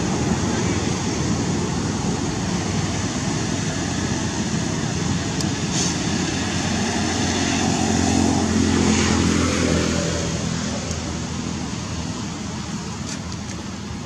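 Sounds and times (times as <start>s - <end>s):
vehicle engine droning: 0.0s - 14.0s.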